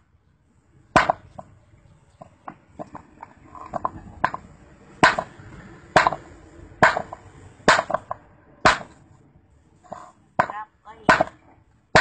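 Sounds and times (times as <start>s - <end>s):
hammer striking rock: 1.0s - 1.2s, 5.0s - 5.3s, 6.0s - 6.2s, 6.8s - 9.0s, 10.4s - 11.4s.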